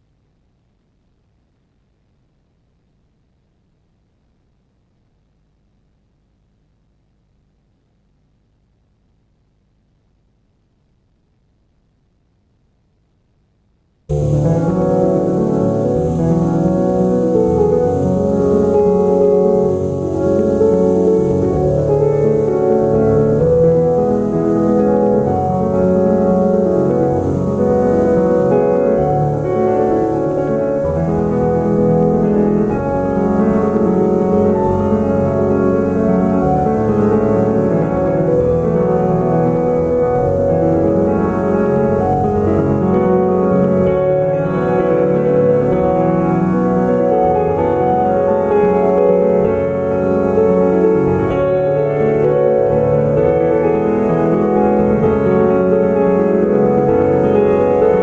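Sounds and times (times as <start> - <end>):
background piano music: 14.1 - 58.0.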